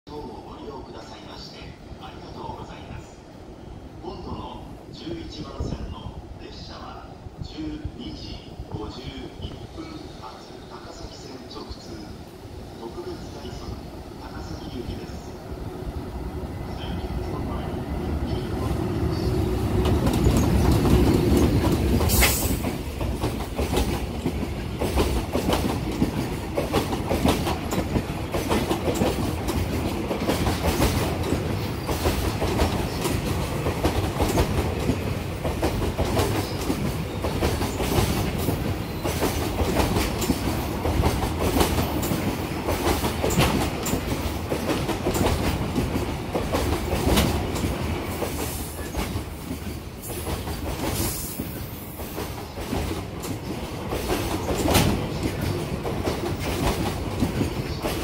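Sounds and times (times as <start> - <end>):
electric locomotive hum: 6.0 - 58.0
wheels clicking over rail joints: 19.8 - 47.9.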